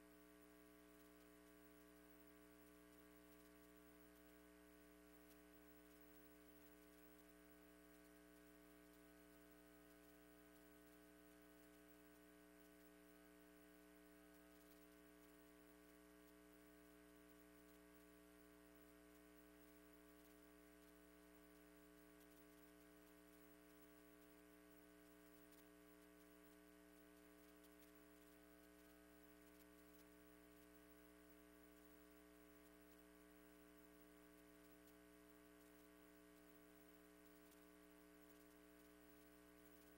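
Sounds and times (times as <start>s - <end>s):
faint electrical mains hum: 0.0s - 39.9s.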